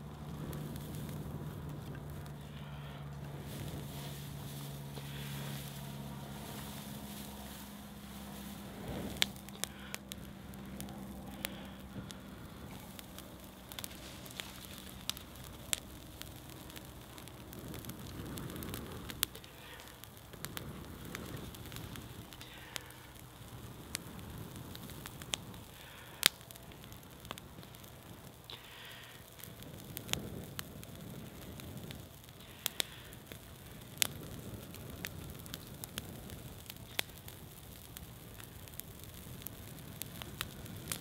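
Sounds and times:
tinder crackling and popping: 0.0 - 41.0
man blowing breaths: 2.4 - 14.7, 28.5 - 29.3.

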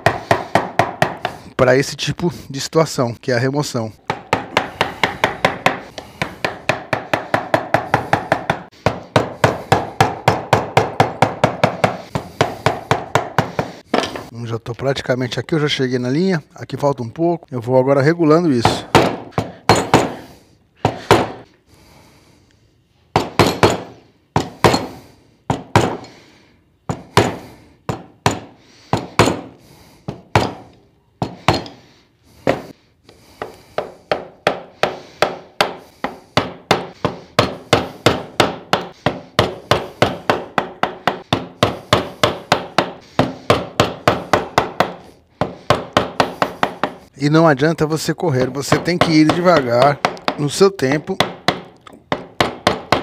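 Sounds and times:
mallet striking wood chisel: 0.0 - 1.4, 4.0 - 14.2, 18.6 - 20.2, 20.8 - 21.4, 23.1 - 26.1, 26.9 - 31.8, 32.4 - 47.1, 48.4 - 53.0.

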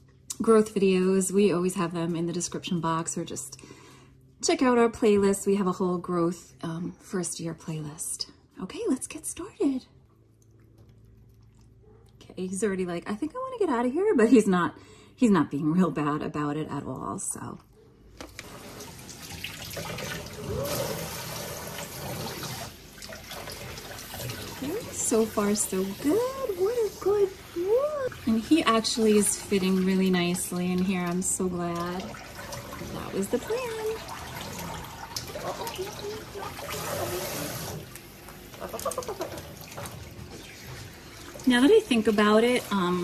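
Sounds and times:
faucet sprayer water rushing: 18.4 - 43.0.

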